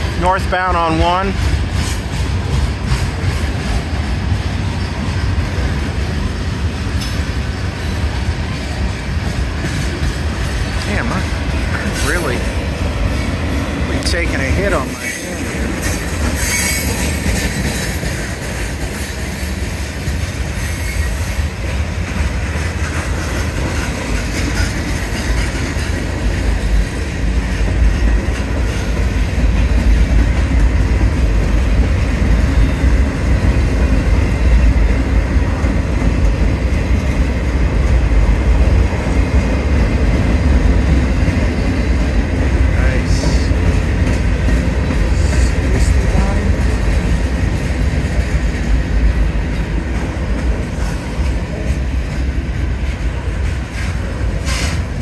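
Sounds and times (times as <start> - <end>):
train wheels rumbling on rails: 0.0 - 55.0
high wheel squeal: 14.9 - 18.1.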